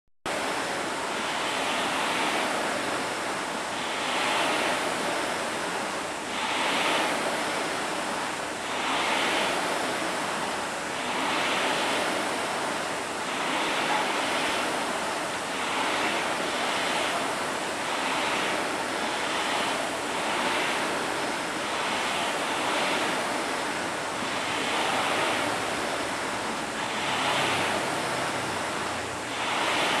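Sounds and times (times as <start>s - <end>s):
rowing machine flywheels whooshing: 0.3s - 30.0s.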